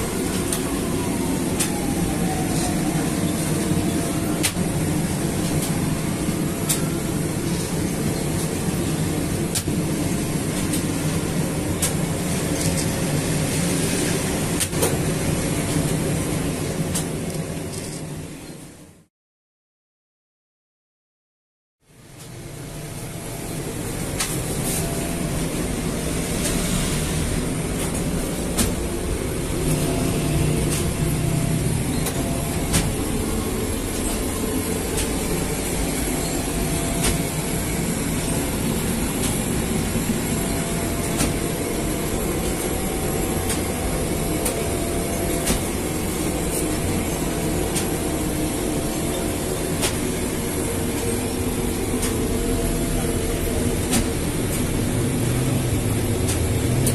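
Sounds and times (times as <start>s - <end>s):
bread-making machinery running: 0.0s - 17.7s, 22.0s - 56.9s
machinery clicks and knocks: 32.0s - 33.1s.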